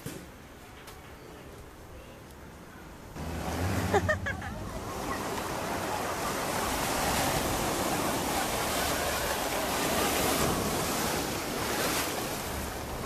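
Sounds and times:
surf washing on beach: 3.2s - 13.0s.

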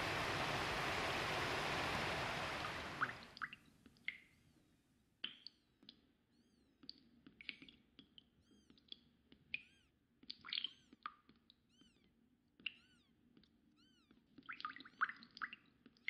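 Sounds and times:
waterfall roaring: 0.0s - 3.3s
faint high chirps and clicks: 5.2s - 16.0s.

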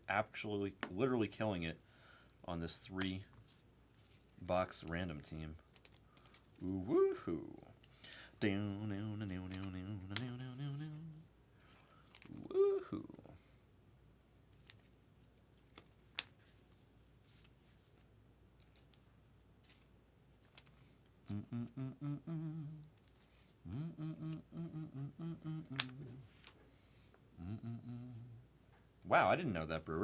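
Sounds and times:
man humming: 6.6s - 7.7s, 8.4s - 11.3s, 12.3s - 13.4s, 21.2s - 22.9s, 23.6s - 26.3s, 27.3s - 28.5s.

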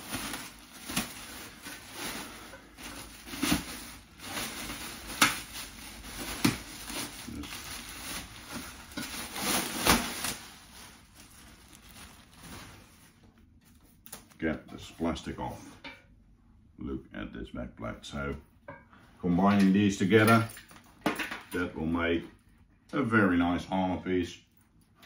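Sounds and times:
plastic wrapping crinkling: 0.0s - 14.5s.

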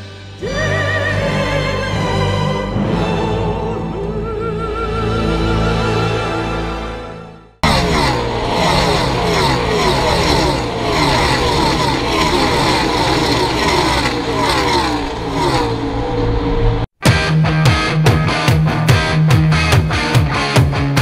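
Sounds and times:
race cars passing at speed: 7.7s - 16.9s
rock music with guitar: 17.0s - 21.0s.

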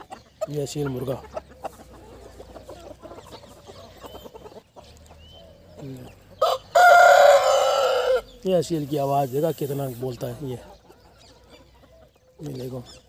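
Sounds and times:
chickens clucking: 0.0s - 13.0s
rooster crowing: 6.4s - 8.3s.

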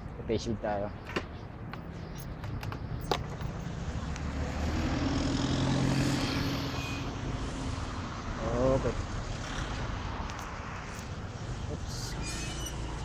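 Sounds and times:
vehicle engine passing by: 3.6s - 11.0s.

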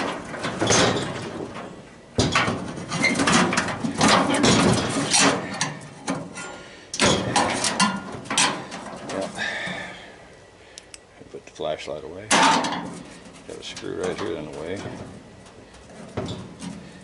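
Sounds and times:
metal clattering and scraping: 0.0s - 9.4s, 12.3s - 17.0s.

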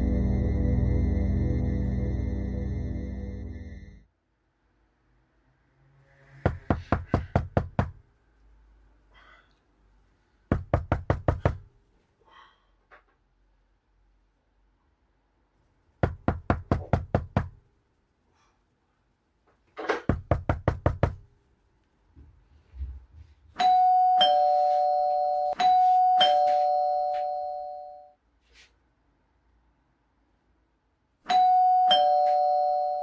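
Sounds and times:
knocking on a door: 6.5s - 8.0s, 10.5s - 11.7s, 16.0s - 17.6s, 19.9s - 21.2s
two-tone doorbell chime: 23.6s - 28.2s, 31.3s - 33.0s.

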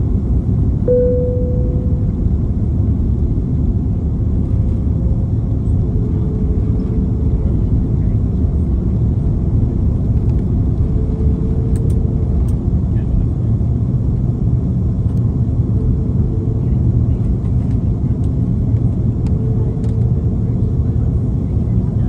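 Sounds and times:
airplane cabin engine rumble: 0.0s - 22.0s
faint humming tone: 0.8s - 3.3s.

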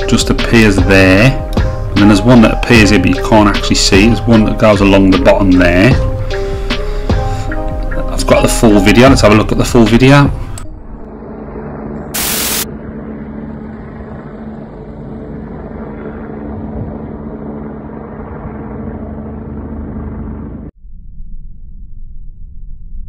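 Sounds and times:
distant helicopter drone: 0.0s - 20.7s
loud burst of hiss: 12.2s - 12.7s.

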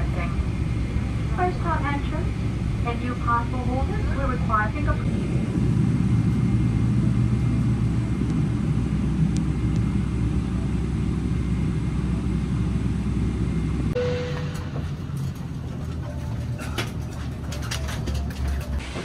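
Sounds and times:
airliner cabin rumble: 0.0s - 19.0s
short single tone: 14.0s - 15.1s.

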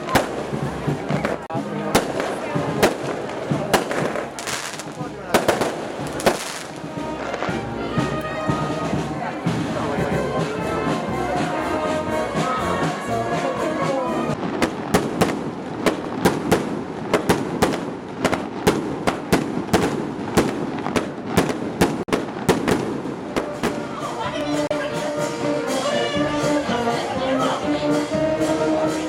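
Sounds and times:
fireworks banging: 0.0s - 8.2s, 14.3s - 26.0s
music playing: 0.0s - 15.0s, 22.4s - 29.0s.

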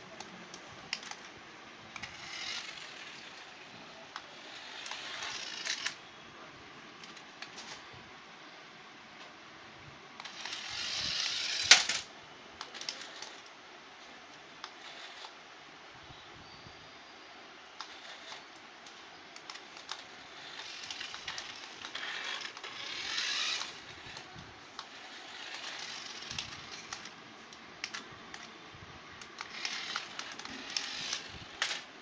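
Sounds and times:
toy car motor whirring: 0.2s - 1.2s, 1.8s - 6.0s, 10.2s - 13.5s, 14.6s - 15.4s, 17.8s - 18.6s, 19.4s - 27.2s, 29.2s - 31.9s.

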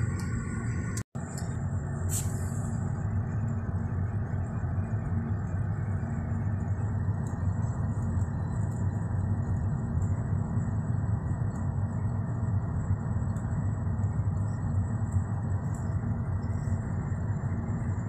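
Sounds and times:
car road noise from inside: 0.0s - 11.4s.

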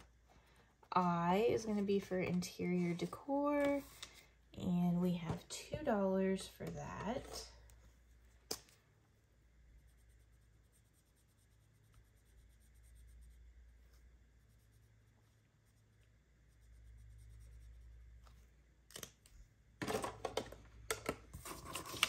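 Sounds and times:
paper rustling and crinkling: 21.3s - 22.0s.

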